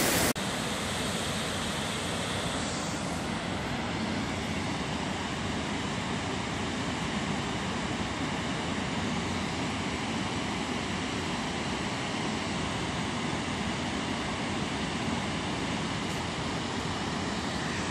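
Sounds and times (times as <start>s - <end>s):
water rushing over rocks: 0.0s - 0.4s.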